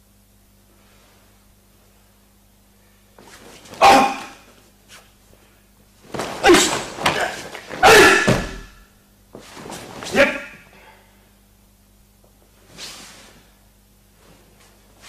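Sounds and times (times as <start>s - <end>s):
people shouting kiai: 3.8s - 4.5s, 6.4s - 8.8s, 10.1s - 10.7s
feet stamping on mat: 6.0s - 10.4s.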